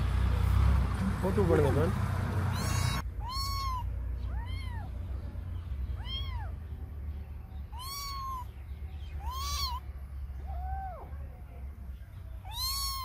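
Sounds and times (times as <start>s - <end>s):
kitten meowing: 2.5s - 5.0s, 6.0s - 6.6s, 7.7s - 8.5s, 9.2s - 9.8s, 12.4s - 13.0s.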